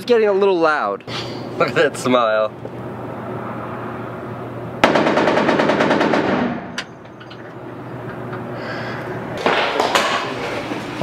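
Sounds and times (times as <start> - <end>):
machine gun burst: 4.8 - 6.7.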